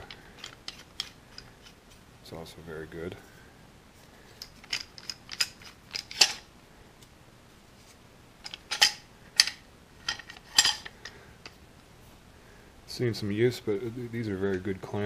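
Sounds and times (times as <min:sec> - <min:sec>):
metal clamp clinking and rattling: 0:04.4 - 0:06.5, 0:08.4 - 0:11.0.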